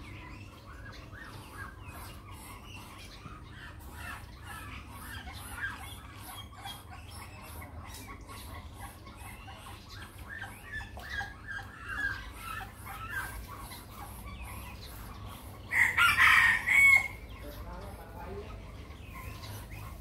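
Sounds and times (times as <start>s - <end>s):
chickens clucking: 0.0s - 20.0s
rooster crowing: 15.7s - 17.2s.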